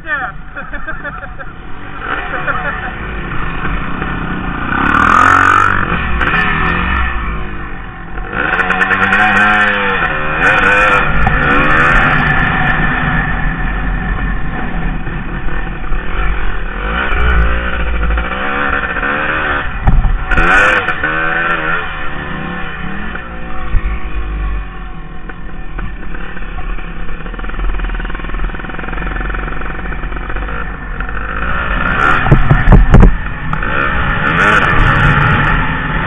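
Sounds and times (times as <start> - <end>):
dirt bike engine revving: 0.7 - 24.8, 25.8 - 36.0.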